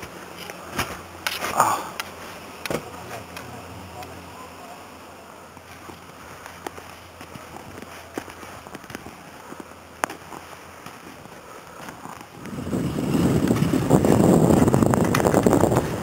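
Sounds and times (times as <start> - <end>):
wind rushing on microphone: 12.3 - 16.0.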